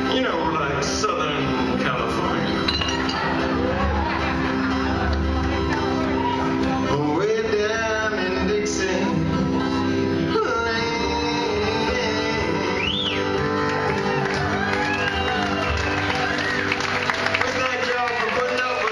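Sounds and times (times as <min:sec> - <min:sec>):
acoustic guitars strummed and picked: 0:00.0 - 0:18.9
man singing: 0:06.6 - 0:13.5.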